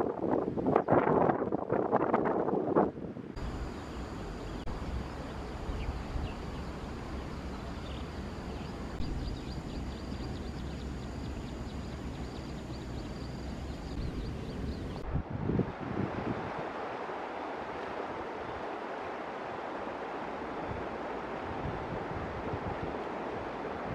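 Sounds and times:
wind rumbling on microphone: 0.0s - 23.9s
high insect calls: 3.4s - 15.0s.

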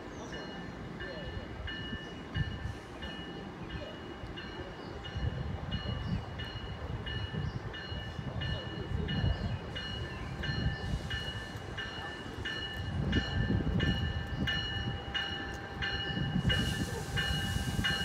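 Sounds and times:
low rumble of train: 0.0s - 18.0s
train bell ringing: 0.0s - 18.0s
hiss of air: 16.4s - 18.0s.

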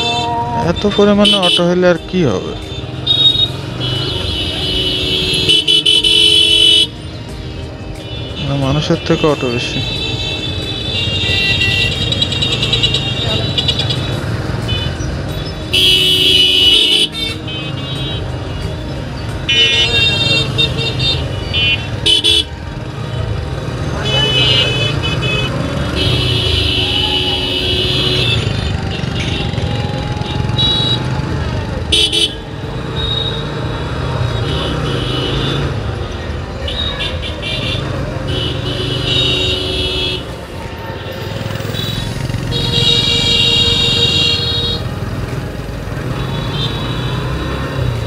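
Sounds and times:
street traffic: 0.0s - 48.0s
shrill vehicle horn honking: 41.6s - 45.0s.

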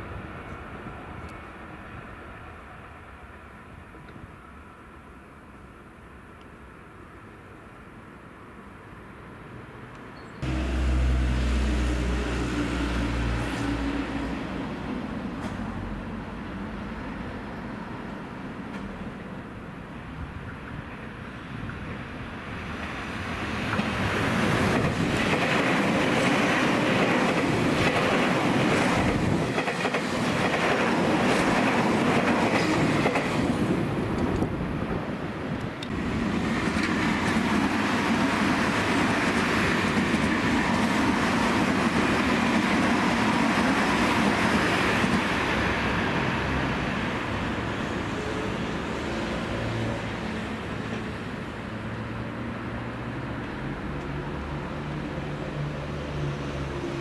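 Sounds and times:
electric train passing: 10.4s - 57.0s
wheels clacking over rail joints: 23.6s - 34.5s.

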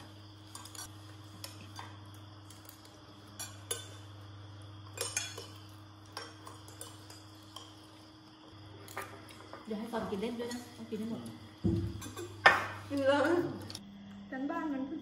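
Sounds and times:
steady low hum: 0.0s - 15.0s
cutlery clinking on plates: 4.9s - 7.9s.

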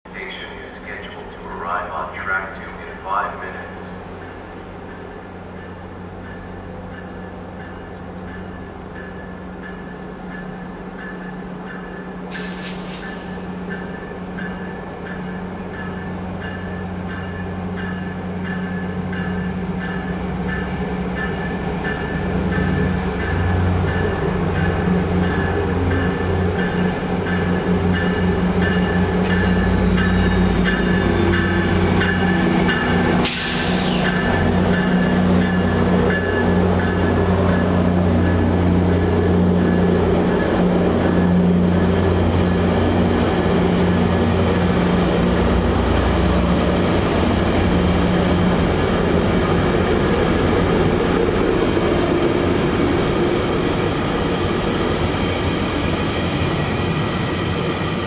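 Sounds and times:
diesel locomotive drone: 0.1s - 58.0s
train bell ringing: 0.2s - 45.7s
air hiss: 12.3s - 13.3s, 33.2s - 34.2s.

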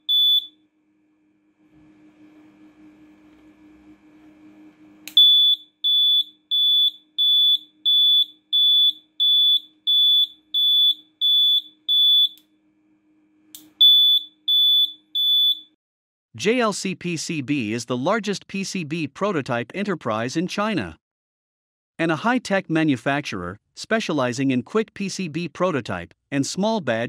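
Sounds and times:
piezo buzzer beeping: 0.0s - 0.6s, 5.1s - 12.4s, 13.8s - 15.7s
click: 5.0s - 5.2s, 13.5s - 13.7s.

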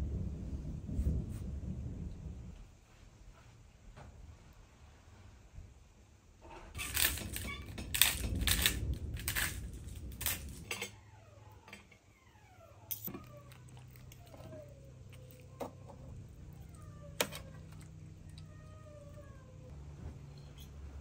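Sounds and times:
spice grinder grinding: 6.8s - 10.6s.

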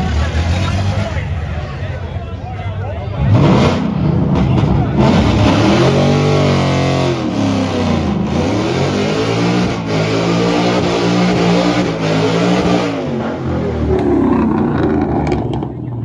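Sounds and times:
car engine revving hard: 3.2s - 15.8s.

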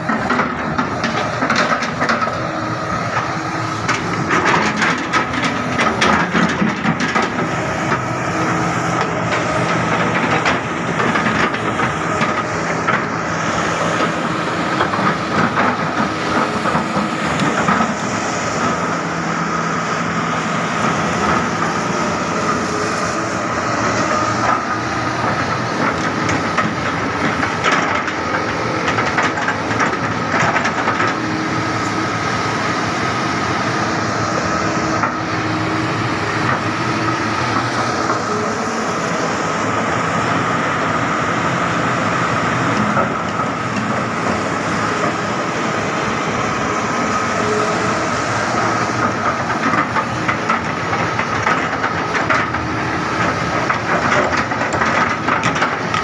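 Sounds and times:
excavator engine hum: 0.0s - 56.0s
clanks and rattles of steel parts: 3.8s - 8.0s, 48.5s - 56.0s.

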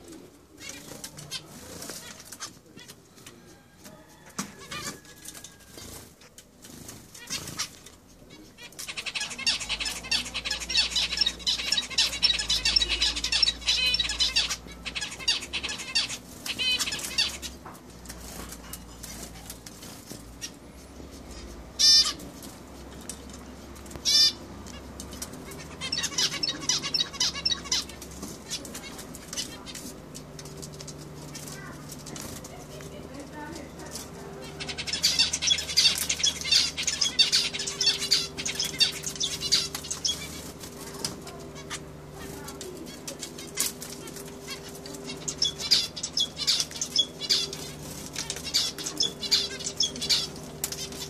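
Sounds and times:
finches calling: 8.4s - 17.7s, 20.3s - 22.9s, 23.8s - 31.8s, 32.4s - 51.0s.

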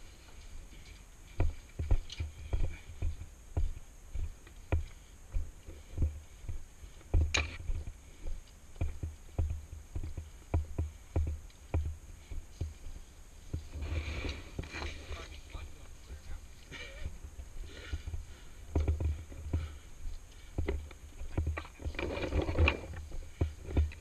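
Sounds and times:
footsteps on concrete: 0.0s - 13.8s
scrape or rustle: 13.6s - 15.6s.

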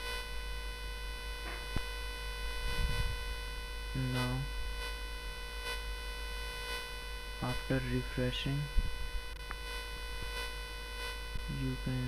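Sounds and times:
electronic buzz of held tones: 0.0s - 12.0s
man speaking: 4.0s - 4.5s, 7.4s - 8.7s, 11.5s - 12.0s.

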